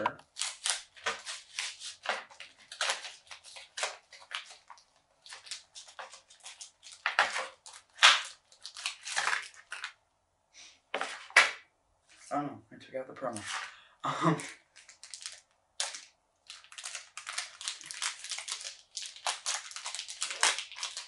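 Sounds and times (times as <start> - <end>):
cardboard pack tearing and crinkling: 0.0 - 9.9, 14.7 - 21.0.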